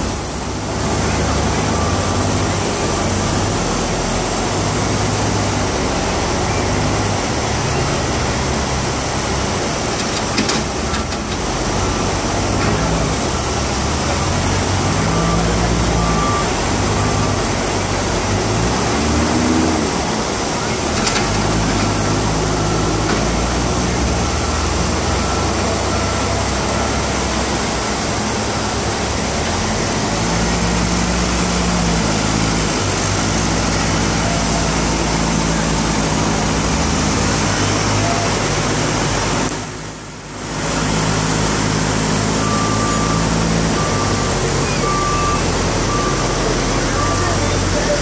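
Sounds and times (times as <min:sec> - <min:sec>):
street traffic rush: 0:00.0 - 0:48.0
short beep: 0:42.4 - 0:48.0.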